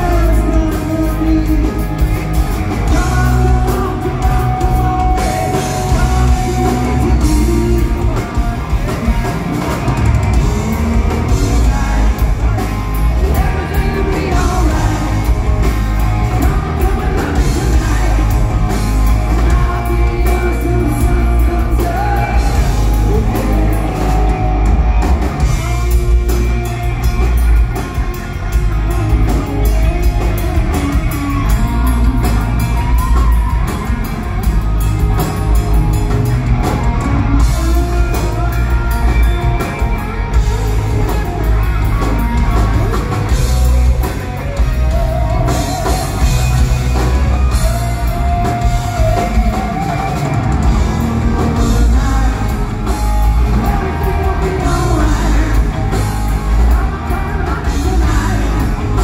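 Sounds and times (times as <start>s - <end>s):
person singing: 0.0s - 27.4s, 35.2s - 59.0s
bass guitar: 0.0s - 59.0s
drum kit: 0.0s - 59.0s
electric guitars: 0.0s - 59.0s.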